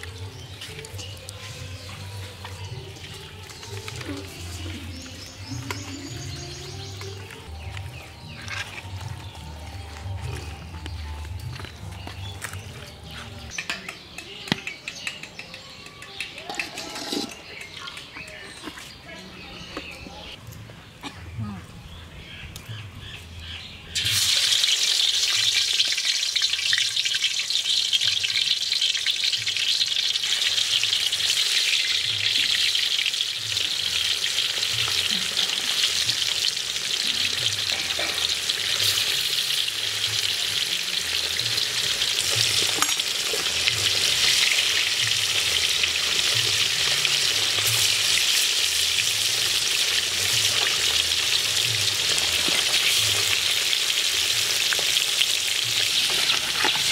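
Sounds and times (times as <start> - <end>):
fish frying in hot oil: 24.0 - 56.9.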